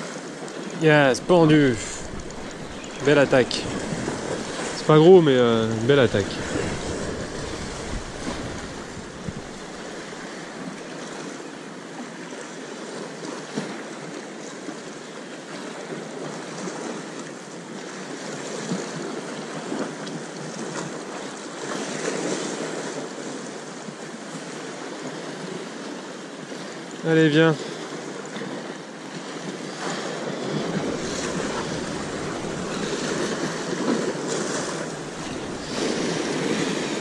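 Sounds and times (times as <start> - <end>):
sea surf washing on shore: 0.0 - 37.0
wind on microphone: 0.9 - 10.4, 30.4 - 37.0.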